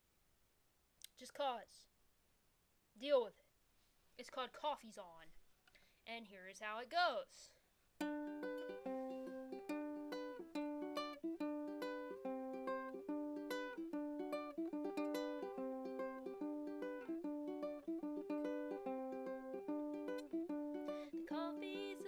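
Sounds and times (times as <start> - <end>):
solo ukulele plucking: 8.0 - 22.0.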